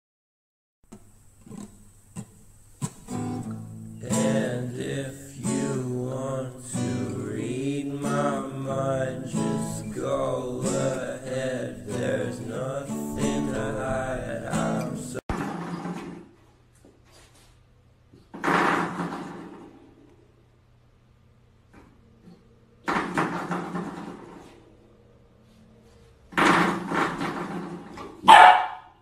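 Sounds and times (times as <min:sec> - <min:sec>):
strummed acoustic guitar: 0:01.4 - 0:16.1
person singing: 0:04.0 - 0:15.2.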